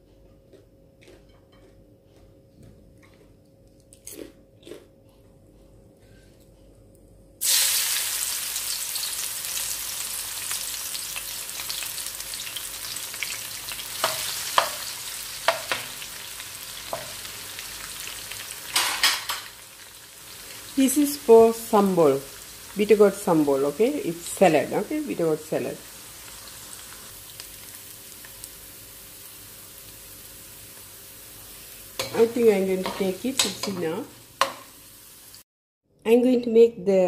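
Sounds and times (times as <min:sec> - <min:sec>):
vegetables sizzling in hot oil: 0:07.4 - 0:35.4.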